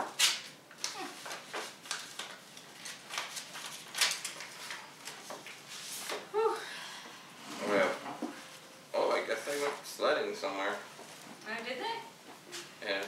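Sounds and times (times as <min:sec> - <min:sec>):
paper rustling and crackling: 0:00.3 - 0:06.2.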